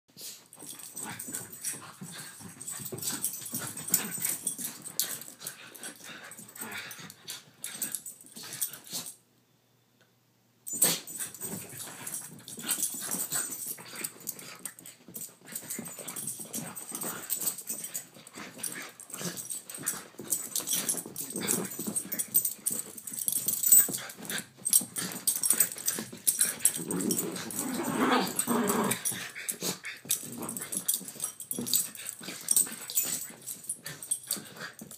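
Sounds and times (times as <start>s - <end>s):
dogs scuffling: 0.5s - 8.9s, 11.0s - 34.9s
dogs growling: 25.5s - 33.0s.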